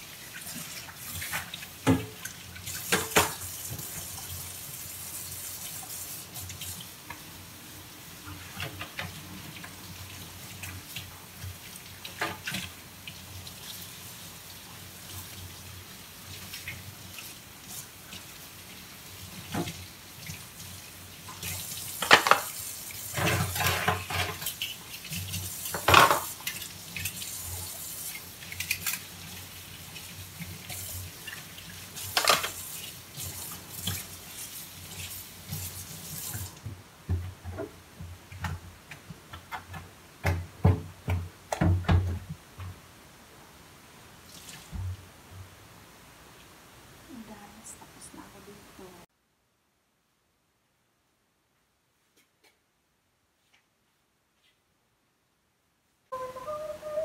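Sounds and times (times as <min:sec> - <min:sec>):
tap running into sink: 0:01.3 - 0:04.0
dishes being scrubbed: 0:21.3 - 0:36.6
metal bowl and pots clinking: 0:25.7 - 0:26.6.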